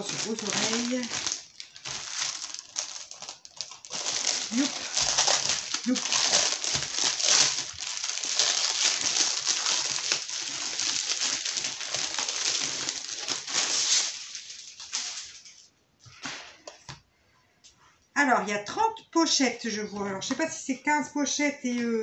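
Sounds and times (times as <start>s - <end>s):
plastic bag crinkling: 0.0s - 15.7s.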